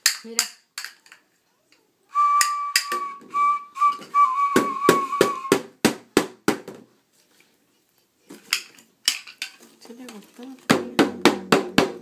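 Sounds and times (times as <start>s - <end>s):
high whistle blasts: 2.1s - 5.6s
toy drum beats: 2.2s - 6.2s.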